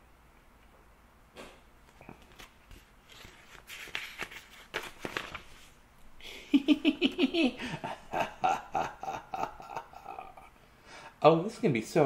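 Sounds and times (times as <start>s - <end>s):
book pages turning: 1.8s - 5.8s
man giggling: 6.2s - 10.6s.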